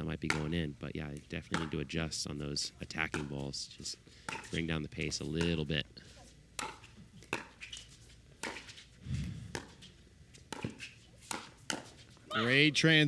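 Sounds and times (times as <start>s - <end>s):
paddles hitting plastic ball: 0.3s - 1.8s, 2.9s - 3.4s, 4.2s - 5.6s, 6.6s - 7.6s
short low thud: 9.0s - 9.6s.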